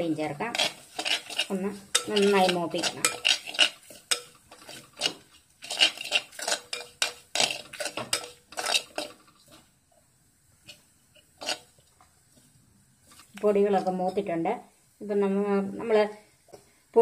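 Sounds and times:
metal spoon scraping clay pot: 0:00.4 - 0:09.6, 0:10.6 - 0:11.8.

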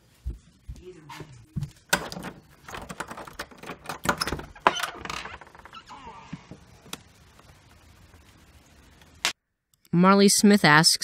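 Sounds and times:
door latch rattling clicks: 0:01.9 - 0:05.1.

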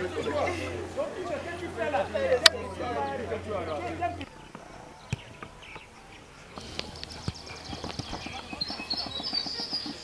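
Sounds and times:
faint voices: 0:00.0 - 0:10.0
high chirping: 0:02.5 - 0:10.0.

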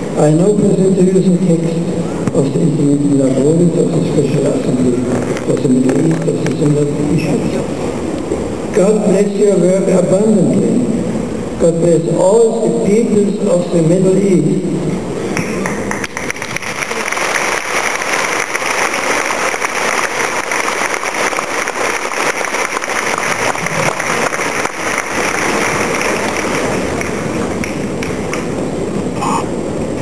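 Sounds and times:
crowd applauding: 0:15.4 - 0:28.6.

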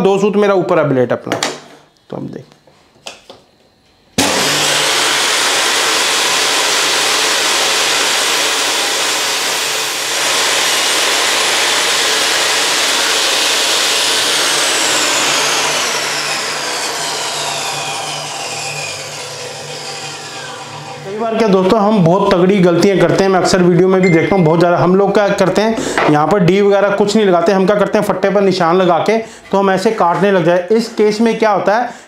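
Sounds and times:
table saw cutting wood: 0:04.2 - 0:23.7.

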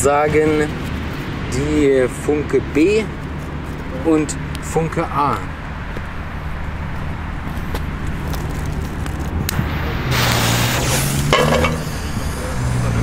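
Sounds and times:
torch lighter hissing: 0:10.1 - 0:12.2.

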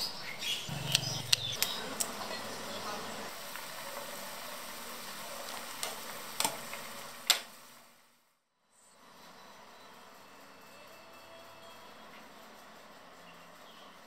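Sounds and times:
soup simmering hiss: 0:00.4 - 0:08.2.

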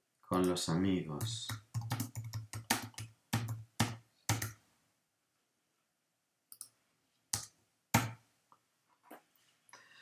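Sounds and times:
computer keyboard keystrokes: 0:01.5 - 0:04.6.

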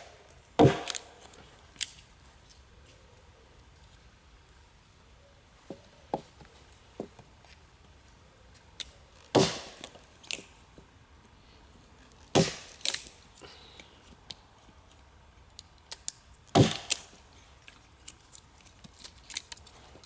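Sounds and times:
wood splitting crackle: 0:00.0 - 0:02.1, 0:08.8 - 0:10.6, 0:12.0 - 0:13.2, 0:14.9 - 0:20.0
heavy knocks on log: 0:00.6 - 0:00.9, 0:09.4 - 0:09.7, 0:16.6 - 0:16.8.

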